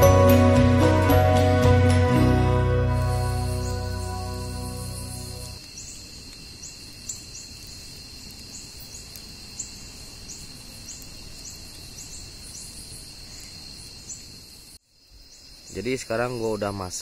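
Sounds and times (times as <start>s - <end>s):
fire popping: 0.0s - 11.8s
campfire burning: 0.0s - 12.5s
short high insect chirps: 2.8s - 6.0s
crickets trilling: 2.8s - 17.0s.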